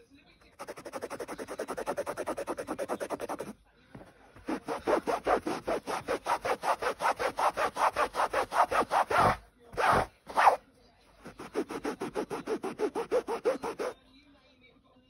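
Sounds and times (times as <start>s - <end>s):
cloth scrubbing upholstery: 0.5s - 3.5s, 4.4s - 10.6s, 11.2s - 14.0s.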